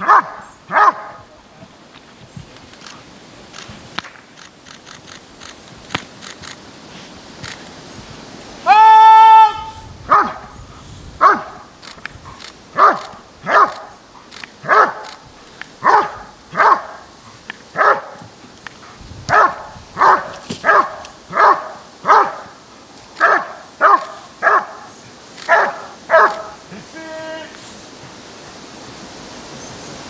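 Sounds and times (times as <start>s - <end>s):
dog barking sharply: 0.0s - 1.2s, 10.1s - 10.5s, 11.2s - 11.6s, 12.8s - 13.9s, 14.6s - 15.1s, 15.8s - 17.0s, 17.8s - 18.2s, 19.3s - 22.5s, 23.2s - 24.8s, 25.5s - 26.6s.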